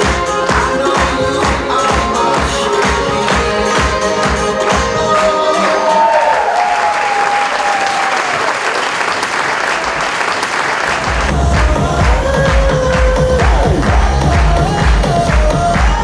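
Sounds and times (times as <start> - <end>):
music track with heavy beat: 0.0 - 5.6, 11.1 - 16.0
runway music with beat: 0.0 - 6.2, 11.0 - 16.0
audience applause: 2.3 - 16.0.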